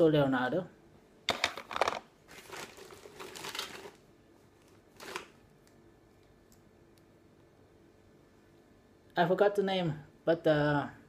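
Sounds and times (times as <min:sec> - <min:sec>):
rustling toy figures: 0:01.3 - 0:05.4.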